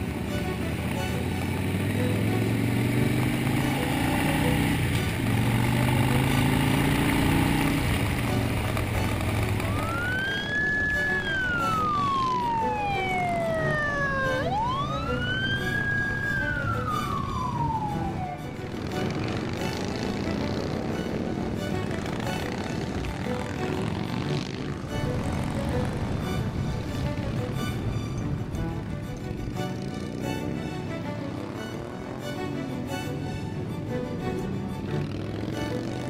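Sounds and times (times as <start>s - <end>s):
siren wailing: 9.6s - 19.2s.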